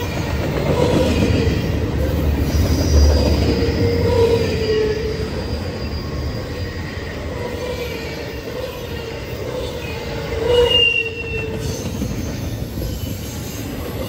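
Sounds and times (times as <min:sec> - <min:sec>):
train wheels rumbling on rails: 0:00.0 - 0:14.0
high wheel squeal: 0:00.8 - 0:14.0.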